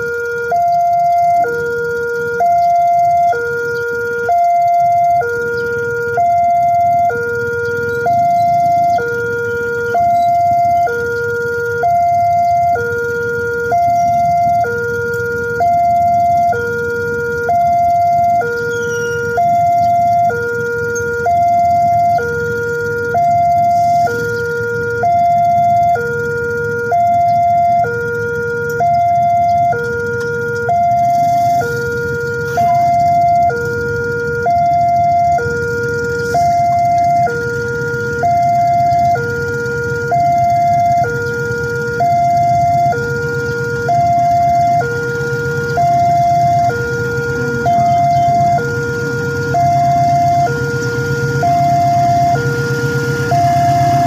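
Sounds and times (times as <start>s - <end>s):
level crossing two-tone alarm: 0.0s - 54.0s.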